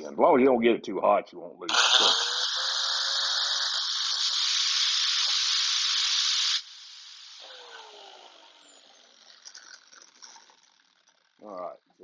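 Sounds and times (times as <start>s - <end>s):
motor winding down whine: 1.7s - 11.7s
grinder grinding steel: 1.7s - 12.0s.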